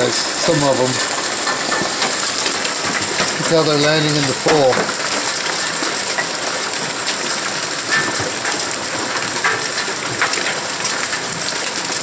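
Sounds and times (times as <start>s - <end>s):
hail and heavy rain pelting: 0.0s - 12.0s
hailstones splashing into pool: 0.0s - 12.0s.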